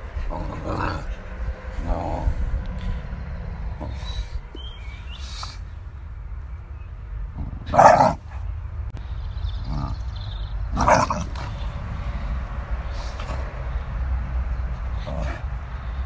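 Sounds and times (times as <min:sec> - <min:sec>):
dog barking: 0:07.7 - 0:08.3, 0:10.8 - 0:11.3.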